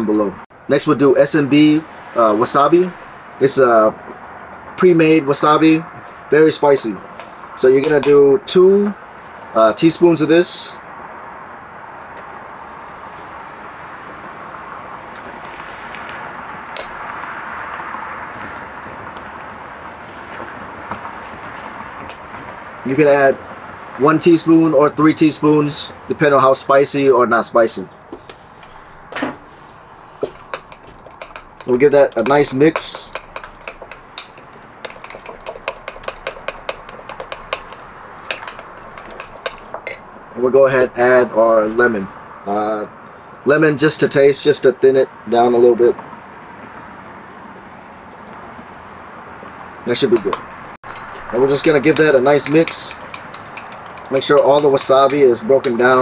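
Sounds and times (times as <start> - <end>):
distant road traffic rush: 0.0 - 56.0
spoon clinking against bowl: 16.8 - 17.0, 30.2 - 40.1, 50.2 - 55.8.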